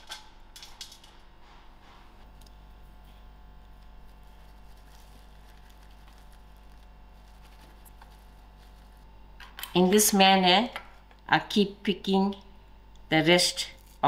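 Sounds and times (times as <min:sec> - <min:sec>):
steady low hum: 0:00.0 - 0:14.0
faint rustling of seedlings: 0:03.2 - 0:09.1.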